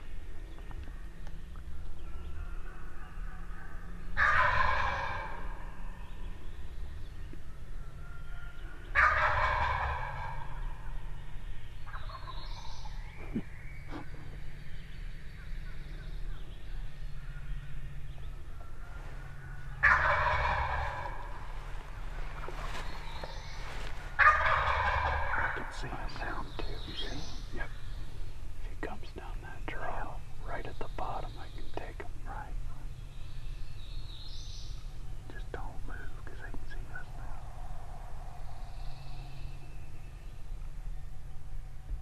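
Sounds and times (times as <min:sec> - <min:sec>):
turkey gobbling: 0:04.2 - 0:05.7, 0:08.9 - 0:10.9, 0:11.9 - 0:14.4, 0:18.8 - 0:21.6, 0:22.3 - 0:26.2.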